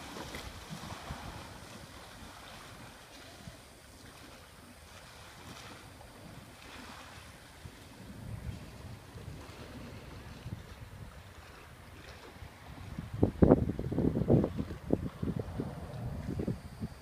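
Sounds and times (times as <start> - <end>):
small waves sloshing against wall: 0.0 - 8.0
wind rumbling on microphone: 0.0 - 17.0.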